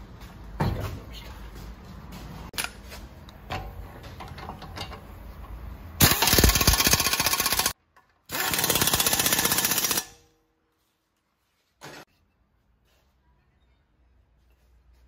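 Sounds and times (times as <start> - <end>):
pneumatic impact wrench hammering: 6.0 - 10.2.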